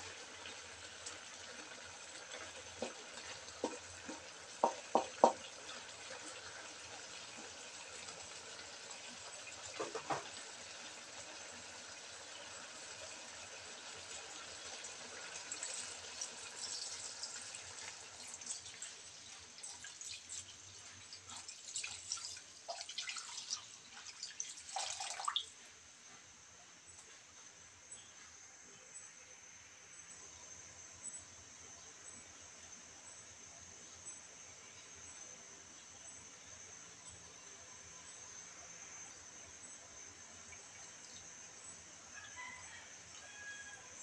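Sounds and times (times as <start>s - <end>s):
broth simmering in a wok: 0.0s - 26.5s, 29.0s - 44.0s
water pouring and splashing: 15.5s - 25.6s.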